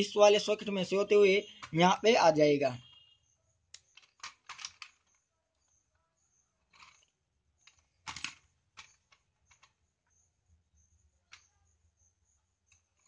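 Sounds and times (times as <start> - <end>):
clicks and rustles of wires: 3.7 - 5.8, 6.6 - 9.9.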